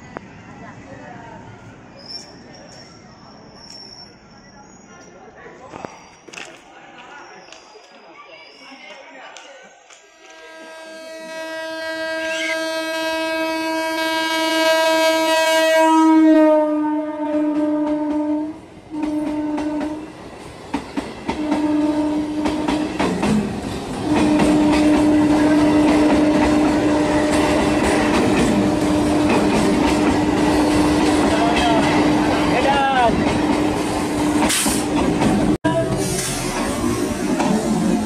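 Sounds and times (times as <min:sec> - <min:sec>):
train horn blasts: 0:10.3 - 0:20.1, 0:21.3 - 0:23.0, 0:24.0 - 0:27.7.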